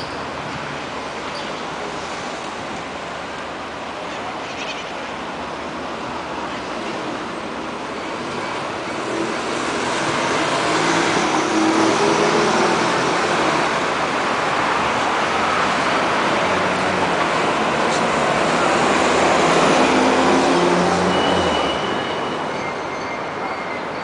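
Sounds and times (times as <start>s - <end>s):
cars driving past: 8.9s - 22.6s.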